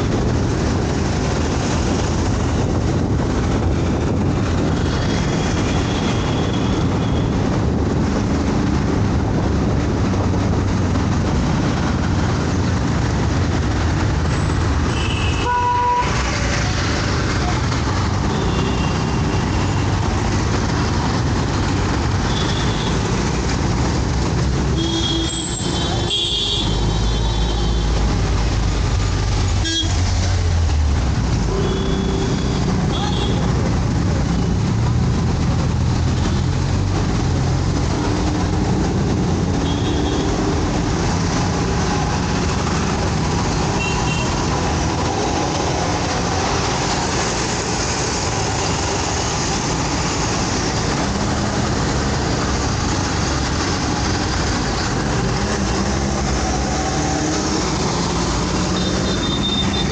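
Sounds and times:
city traffic and engine noise: 0:00.0 - 0:59.9
vehicle horns tooting: 0:14.9 - 0:16.4, 0:29.6 - 0:30.1, 0:58.8 - 0:59.9.

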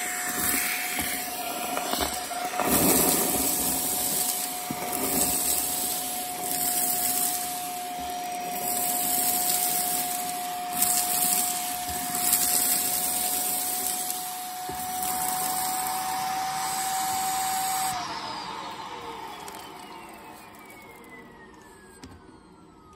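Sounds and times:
vacuum cleaner whining: 0:00.0 - 0:22.9.

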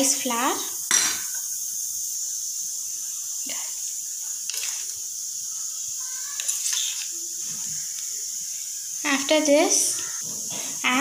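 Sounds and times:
steady background hiss: 0:00.0 - 0:11.0.

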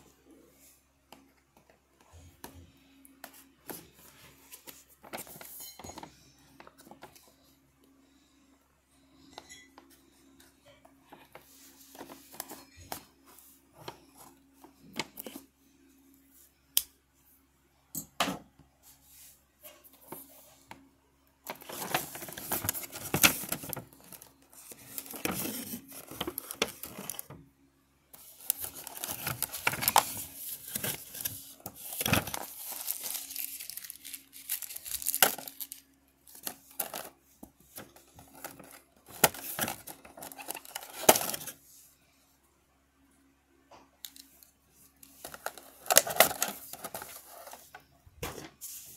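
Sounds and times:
plastic crinkling and rustling: 0:21.5 - 0:27.4, 0:28.2 - 0:41.6, 0:44.1 - 0:47.8.

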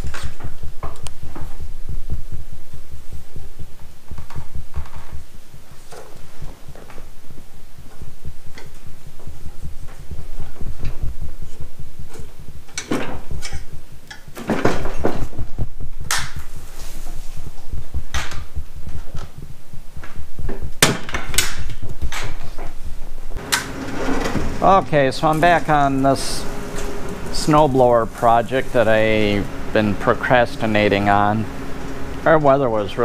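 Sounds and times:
low pulsing rumble: 0:23.3 - 0:33.0.

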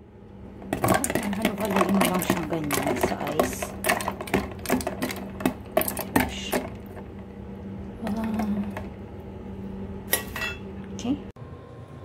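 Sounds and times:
utensil and ice knocking plastic: 0:00.6 - 0:07.0.

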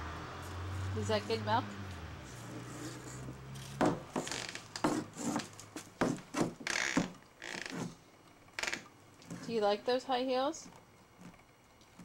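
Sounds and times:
high heels knocking on wooden boards: 0:03.8 - 0:07.2.

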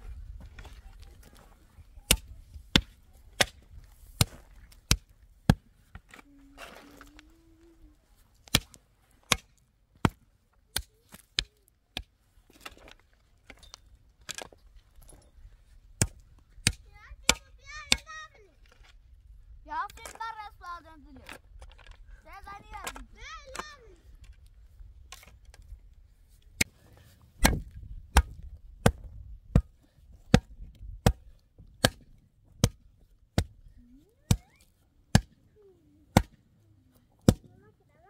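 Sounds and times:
sharp chopping blows: 0:27.4 - 0:29.7, 0:30.3 - 0:32.8, 0:36.1 - 0:36.4.

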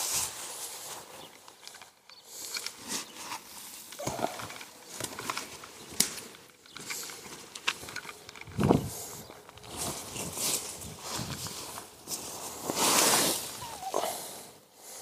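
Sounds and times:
fleece fabric rustling: 0:02.7 - 0:14.4.

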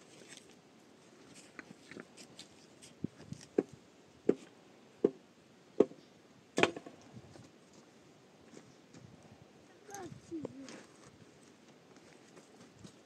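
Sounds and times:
footsteps crunching on gravel: 0:10.5 - 0:13.0.

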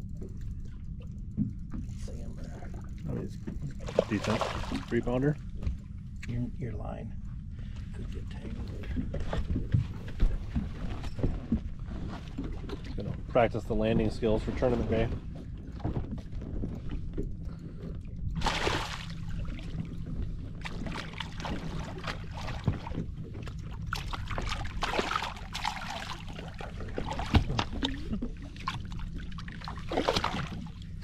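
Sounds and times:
steady low rumble: 0:00.0 - 0:31.0
fish splashing at water surface: 0:03.8 - 0:04.9, 0:18.4 - 0:19.8, 0:23.9 - 0:30.8.

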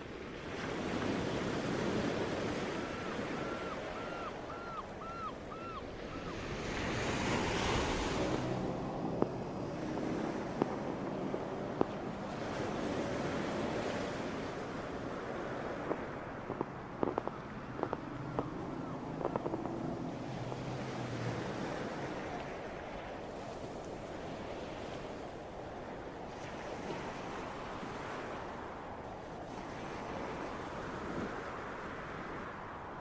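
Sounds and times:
steady rushing noise: 0:07.3 - 0:22.9
low hum: 0:08.0 - 0:22.4
faint clicks: 0:15.9 - 0:18.6, 0:19.2 - 0:19.8.

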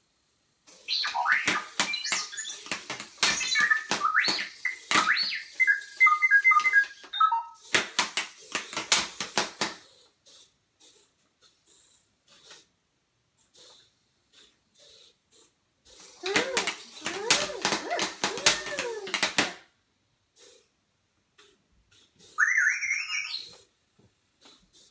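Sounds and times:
robot beeps and whistles: 0:00.8 - 0:07.6, 0:16.2 - 0:19.1, 0:22.3 - 0:23.6.

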